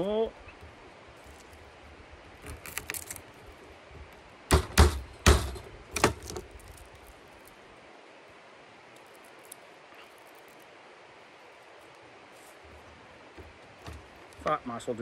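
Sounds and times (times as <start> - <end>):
garlic cloves being crushed: 2.4 - 3.4, 5.9 - 7.5.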